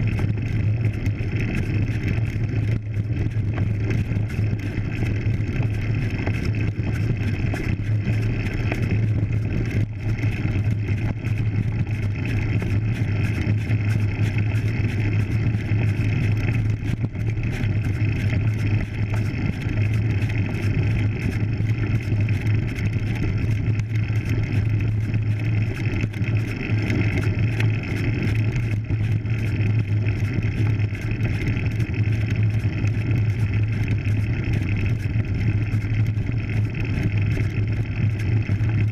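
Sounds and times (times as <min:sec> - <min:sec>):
bike tyres rolling on dirt: 0:00.0 - 0:38.9
fine rattle: 0:00.0 - 0:38.9.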